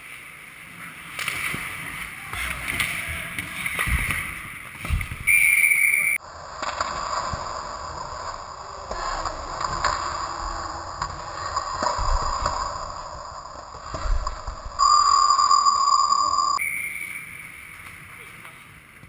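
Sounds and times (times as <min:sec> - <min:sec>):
skate blades scraping ice: 0:00.0 - 0:14.6
dull rink noise: 0:00.0 - 0:19.0
hockey stick clacks: 0:01.1 - 0:05.3, 0:06.6 - 0:10.4.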